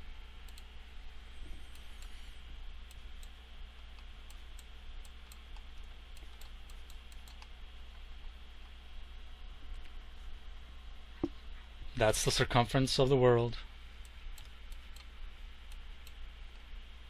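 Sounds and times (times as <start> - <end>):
low electrical hum and hiss: 0.0 - 17.0
keyboard and mouse clicks: 2.9 - 7.5.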